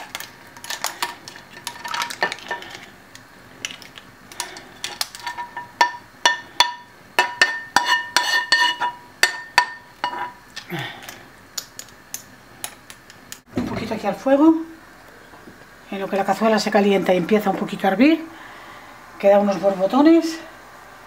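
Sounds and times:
spoon scraping a frying pan: 0:04.4 - 0:10.4.

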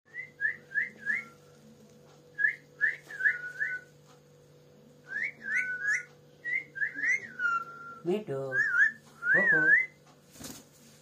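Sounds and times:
steady low hum: 0:00.1 - 0:11.0
parakeet whistling: 0:05.1 - 0:10.0.

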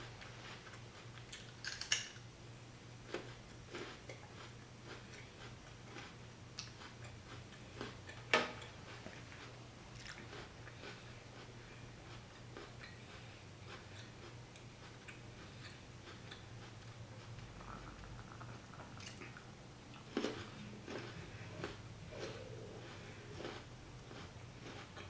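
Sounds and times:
faint low hum: 0:00.0 - 0:25.0
crunchy chewing: 0:03.0 - 0:25.0.

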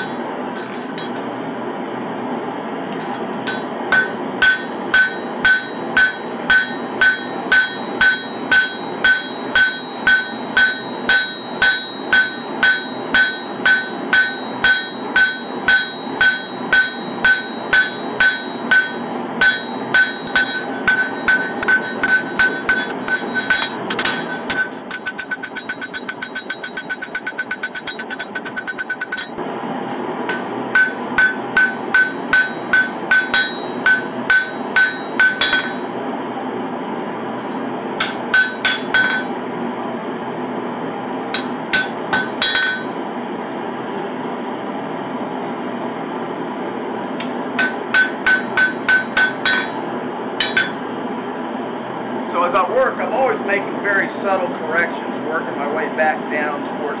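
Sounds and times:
hammer striking blade on anvil: 0:00.0 - 0:01.3, 0:03.4 - 0:29.4, 0:30.3 - 0:36.0, 0:38.0 - 0:39.4, 0:41.3 - 0:43.0, 0:47.2 - 0:49.8, 0:50.4 - 0:50.8.

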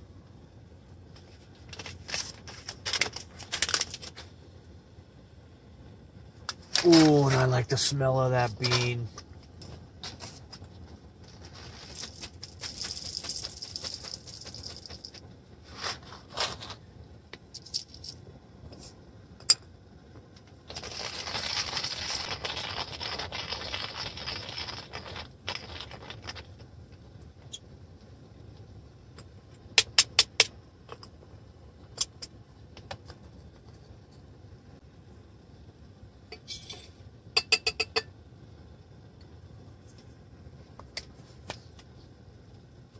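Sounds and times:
coffee beans rattling and scraping: 0:01.1 - 0:04.3, 0:06.5 - 0:16.8, 0:17.4 - 0:19.0, 0:20.6 - 0:27.6, 0:36.4 - 0:38.1.

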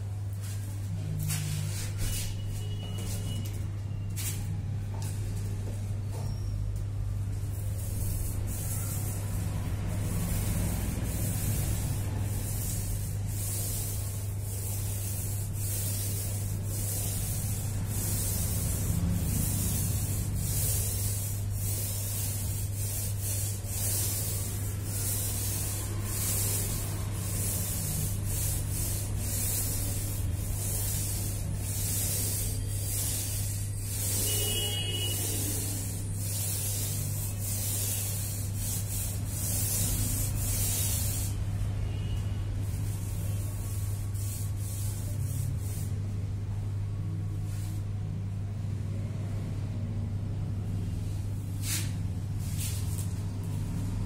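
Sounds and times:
steady low hum: 0:06.6 - 0:34.4
sandpaper rasping: 0:07.6 - 0:41.4.

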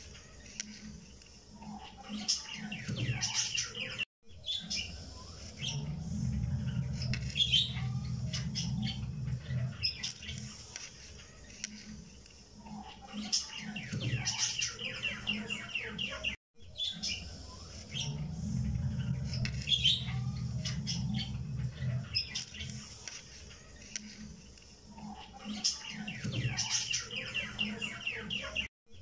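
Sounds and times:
birds chirping: 0:00.0 - 0:29.0
low hum: 0:04.8 - 0:10.0, 0:17.1 - 0:22.4.

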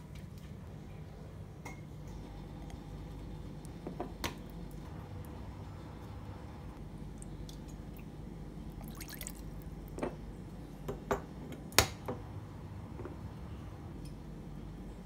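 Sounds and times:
oil trickling into metal bowl: 0:08.8 - 0:09.5.

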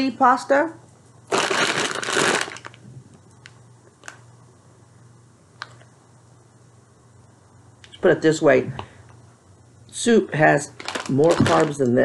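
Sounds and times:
dry pasta rattling in bag: 0:01.3 - 0:02.8, 0:10.7 - 0:11.9
plastic bag crinkling: 0:01.3 - 0:02.9, 0:04.0 - 0:04.2, 0:10.6 - 0:12.0.

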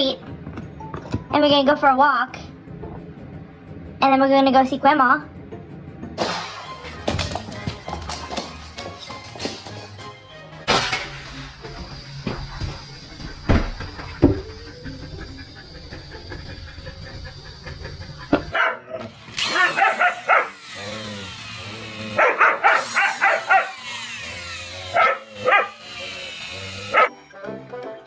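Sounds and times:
dog yelping and barking: 0:18.4 - 0:20.6, 0:22.2 - 0:23.9, 0:24.9 - 0:25.9, 0:26.8 - 0:27.1.

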